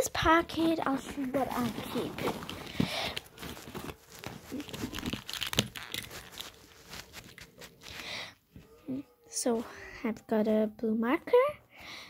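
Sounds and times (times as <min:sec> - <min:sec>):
fabric rustling and crinkling: 0:00.0 - 0:08.7.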